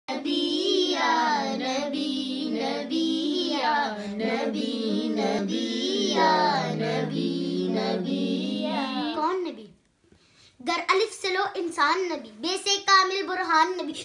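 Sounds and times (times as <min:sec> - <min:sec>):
girl singing: 0:00.1 - 0:09.8.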